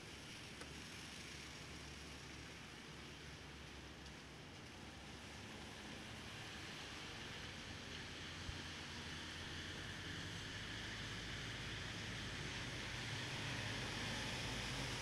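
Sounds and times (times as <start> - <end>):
wet street traffic: 0.0 - 15.0
small tick: 0.6 - 0.8, 4.0 - 4.7.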